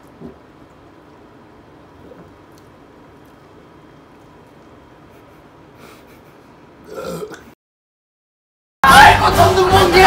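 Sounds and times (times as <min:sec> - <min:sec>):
man's long croaking burp: 0:06.8 - 0:07.6.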